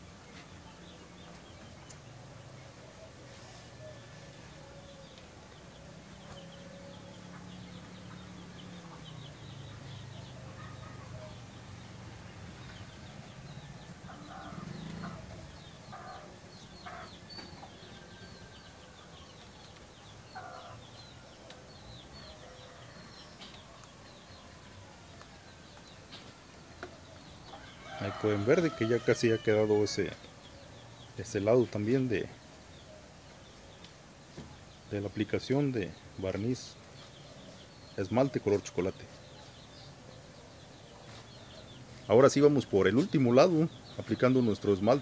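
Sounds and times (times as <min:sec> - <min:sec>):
birds chirping: 0:00.0 - 0:45.0.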